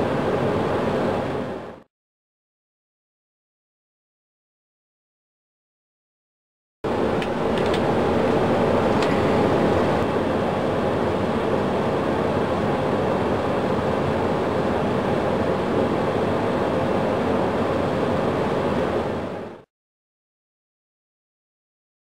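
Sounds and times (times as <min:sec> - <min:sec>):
cockpit and engine roar: 0:06.9 - 0:19.6.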